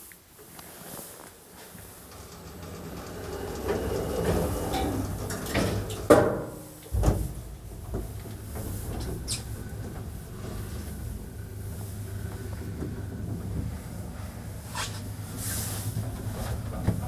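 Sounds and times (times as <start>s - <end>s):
lift car humming: 1.6s - 17.0s
sliding lift doors rumbling shut: 1.6s - 17.0s
doors banging: 2.1s - 13.8s
deep thump of lift starting: 2.8s - 13.8s.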